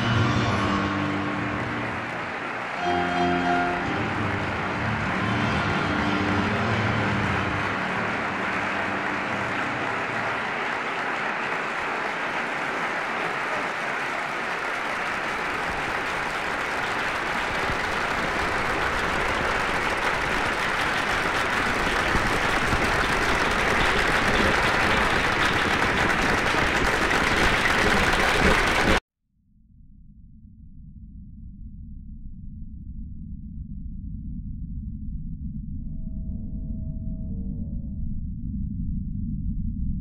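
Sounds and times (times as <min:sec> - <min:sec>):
audience applauding: 0:00.0 - 0:29.0.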